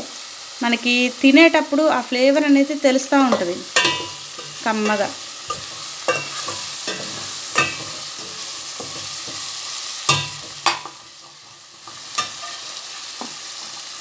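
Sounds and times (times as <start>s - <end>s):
vegetables sizzling in oil: 0.0s - 14.0s
metal spoon scraping a pot: 3.3s - 12.8s.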